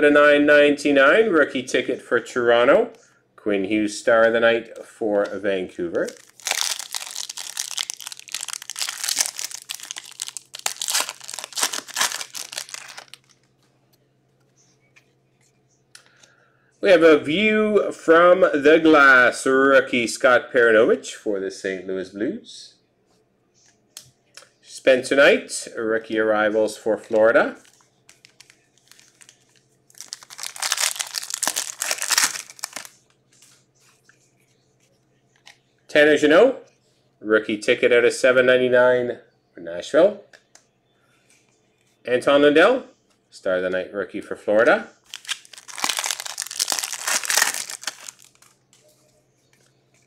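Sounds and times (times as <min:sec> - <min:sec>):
wrapper being torn and crumpled: 0:06.1 - 0:13.4, 0:27.6 - 0:33.0, 0:45.1 - 0:48.6.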